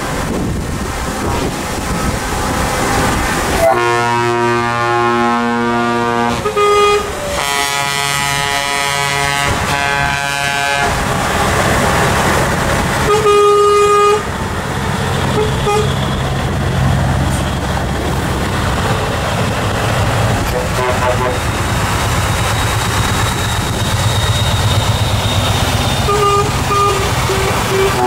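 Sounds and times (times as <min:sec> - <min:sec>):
diesel truck engines rumbling: 0:00.0 - 0:28.0
truck air horn blasts: 0:03.6 - 0:11.0, 0:13.0 - 0:14.3, 0:15.3 - 0:16.1, 0:20.5 - 0:21.5, 0:26.0 - 0:28.0.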